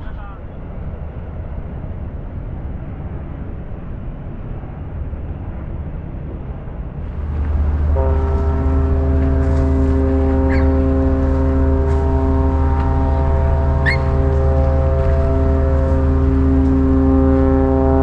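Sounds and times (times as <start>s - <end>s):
low steady rumble: 6.6s - 18.0s
ship's horn blast: 7.0s - 18.0s.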